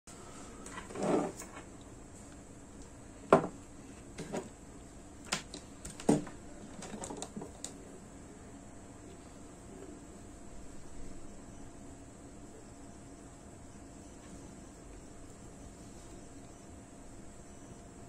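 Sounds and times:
plastic parts clicking and knocking: 5.3s - 7.8s.

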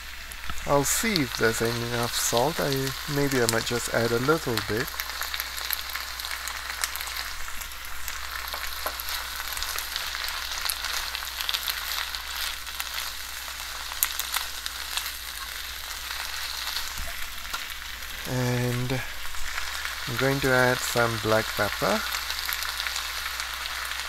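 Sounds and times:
vegetables sizzling in hot oil: 0.0s - 24.0s.

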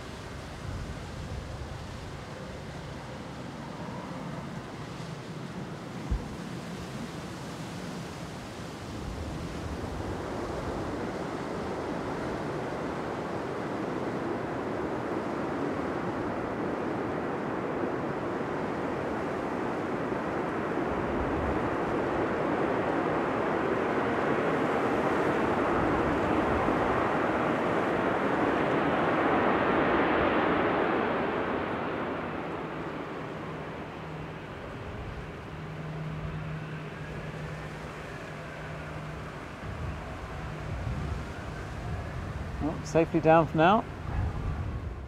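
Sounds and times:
jet engines roaring: 9.7s - 45.0s.

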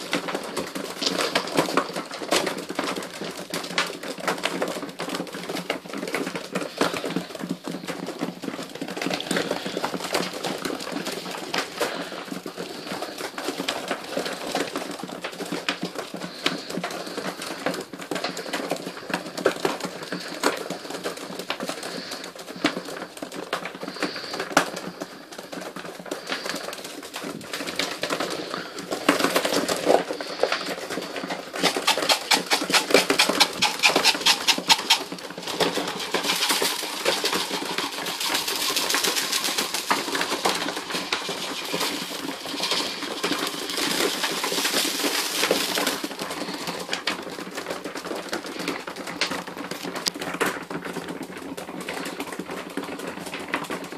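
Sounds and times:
beaks pecking food: 0.0s - 50.2s
pigeons cooing: 27.8s - 47.0s.

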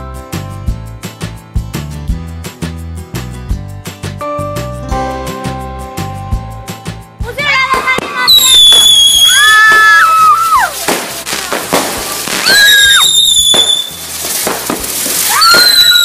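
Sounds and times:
firework crackling bangs: 7.4s - 16.0s
firework whistles: 8.0s - 16.0s
people screaming: 8.2s - 13.9s, 15.1s - 16.0s.

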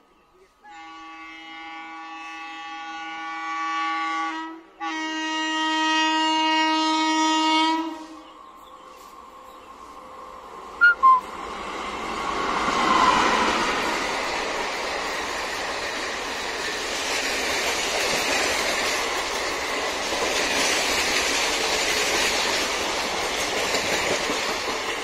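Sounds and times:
train horn blasts: 0.6s - 8.3s
train rushing on rails: 0.8s - 25.0s
sharp high pips: 10.8s - 11.3s.

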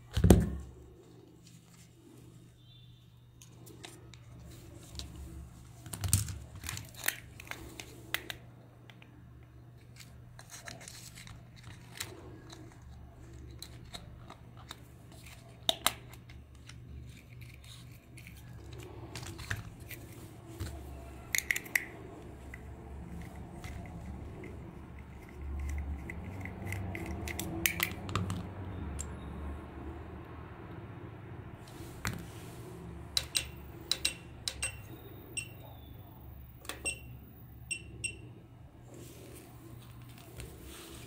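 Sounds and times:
small plastic parts clicking: 21.3s - 21.9s.

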